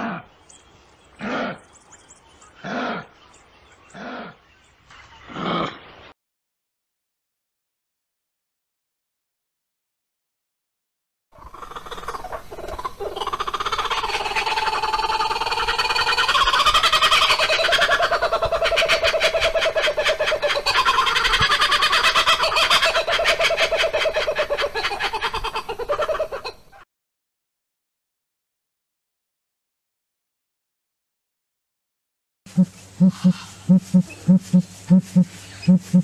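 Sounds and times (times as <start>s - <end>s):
kookaburra laughing call: 11.4s - 26.8s, 32.6s - 36.0s.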